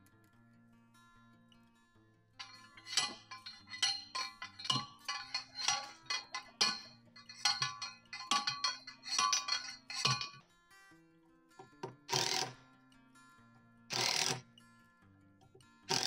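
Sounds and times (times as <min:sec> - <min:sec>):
post driver clanking on metal: 0:02.4 - 0:10.4, 0:13.9 - 0:14.4.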